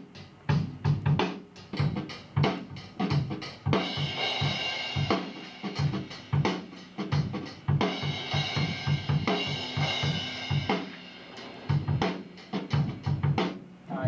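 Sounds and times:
cymbals and hi-hat: 0.0s - 14.0s
bass drum: 0.5s - 13.6s.

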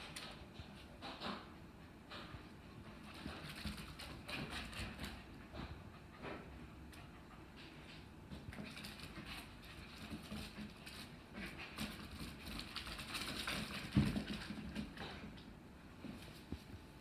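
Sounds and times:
dog claws skittering on wood floor: 8.4s - 15.4s.

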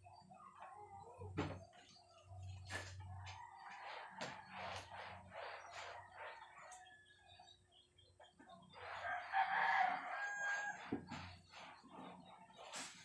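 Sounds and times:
rooster crowing: 9.0s - 10.9s.

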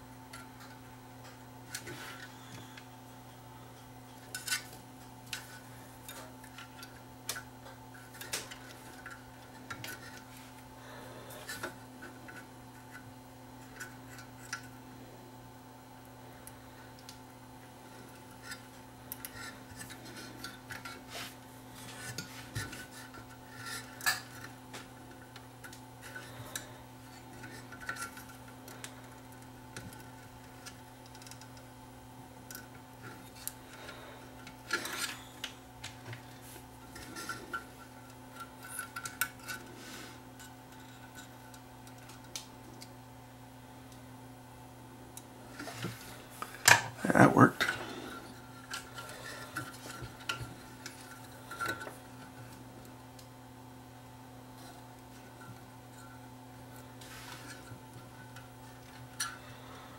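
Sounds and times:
steady low hum: 0.0s - 59.9s
hands handling wires and parts: 3.8s - 10.8s, 16.0s - 31.8s, 32.4s - 43.0s, 45.1s - 53.4s, 54.4s - 59.4s.

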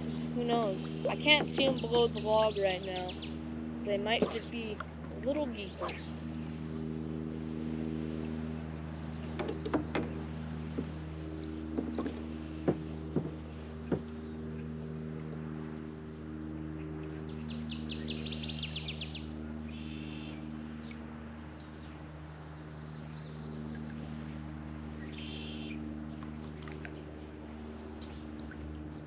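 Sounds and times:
birds chirping: 0.0s - 29.0s
steady low hum: 0.0s - 29.0s
sharp knocks: 9.3s - 11.0s, 11.7s - 14.2s.

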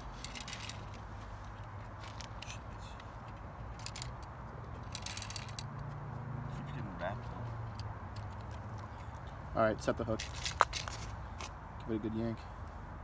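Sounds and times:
fishing line clicks and scrapes: 0.0s - 5.8s.

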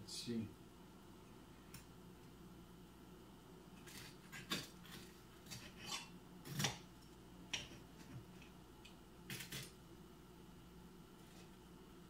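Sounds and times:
knife and fork scraping on a plate: 3.8s - 6.8s.

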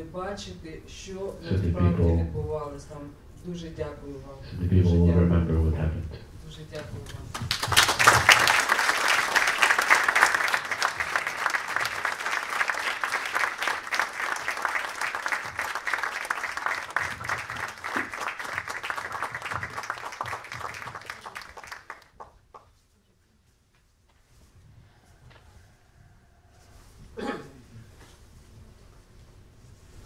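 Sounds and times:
audience applauding: 7.3s - 22.7s.

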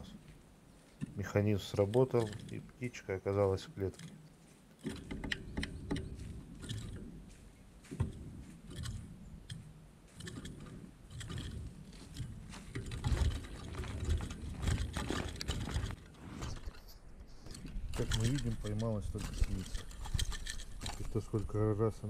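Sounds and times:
bird scrabbling and fluttering in cage: 10.2s - 21.3s.

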